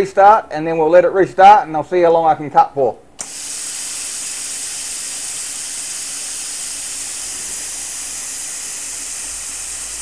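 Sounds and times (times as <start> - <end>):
compressed air hissing: 3.2 - 10.0.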